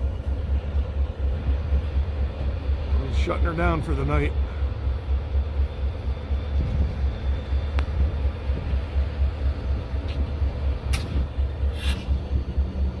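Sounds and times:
diesel locomotives idling: 0.0 - 13.0
short hisses: 11.7 - 12.1.

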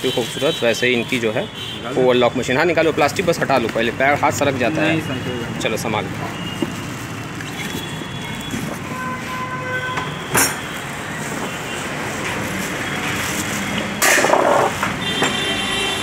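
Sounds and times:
steady background noise: 0.0 - 16.0
plastic wrapping crinkling: 6.0 - 9.4, 11.1 - 13.8.

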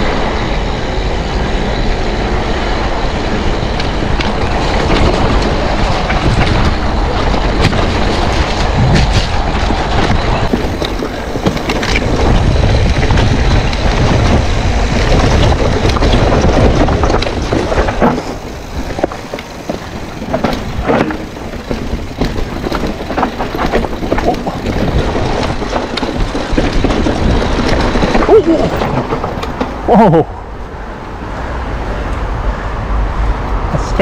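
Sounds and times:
wind on microphone: 0.0 - 33.9
bike frame rattling over bumps: 3.2 - 30.6
bike tyres crunching leaves and stones: 3.5 - 30.0.

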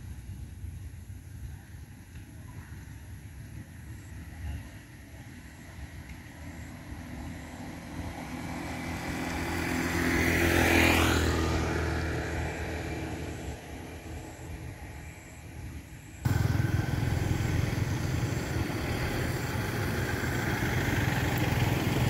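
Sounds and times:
motor vehicle passing by: 6.9 - 14.6, 16.2 - 22.0.

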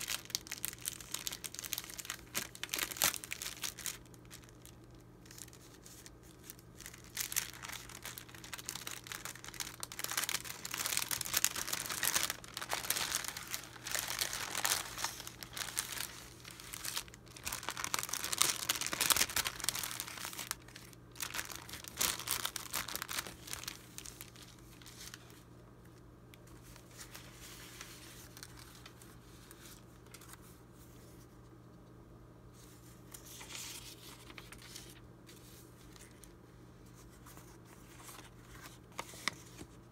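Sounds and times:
plastic sleeve crinkling: 0.0 - 25.4, 26.3 - 30.5, 32.6 - 39.9
paper rustling: 5.3 - 25.4, 32.6 - 36.3, 36.9 - 39.8.

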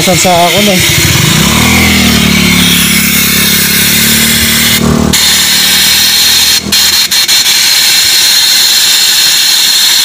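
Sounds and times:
motor humming: 0.1 - 6.8.

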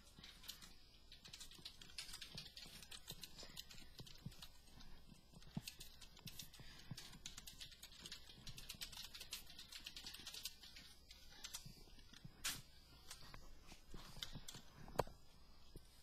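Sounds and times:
computer keyboard typing: 0.0 - 12.4.

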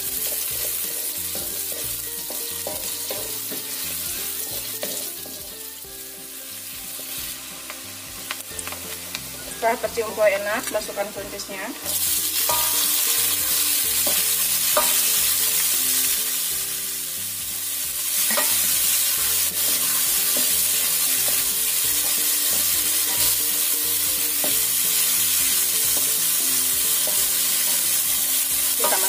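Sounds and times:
spatula scraping a wok: 0.0 - 5.7, 11.8 - 16.2, 17.9 - 29.0
beans sizzling in hot oil: 0.0 - 29.0.

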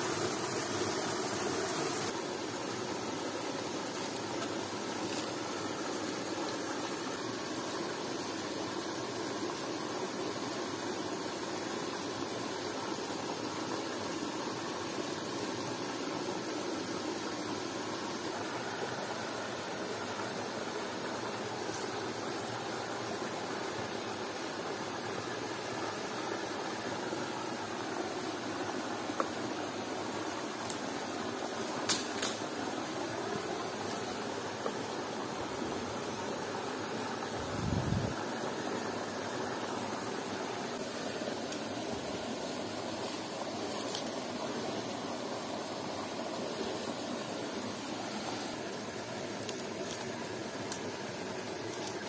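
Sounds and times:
waterfall rushing: 0.0 - 4.0.

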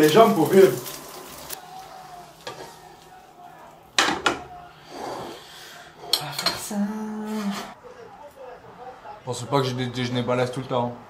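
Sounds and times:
kitchenware clinking: 2.4 - 2.8, 4.0 - 5.4, 6.0 - 6.7.

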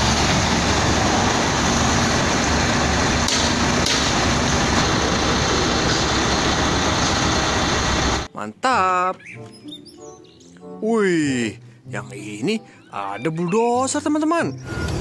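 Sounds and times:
diesel truck engine rumbling: 0.0 - 8.3.

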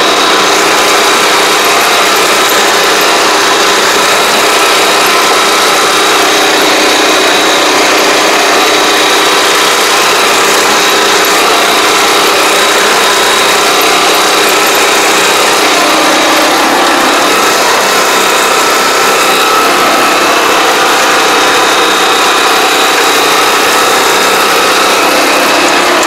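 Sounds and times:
high whine: 0.0 - 26.0
small engine running: 0.0 - 26.0.

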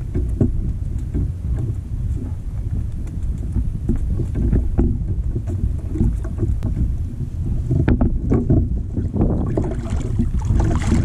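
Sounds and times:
water lapping against hull: 0.0 - 11.0
wind buffeting microphone: 0.0 - 11.0
small knocks and splashes: 7.7 - 11.0.

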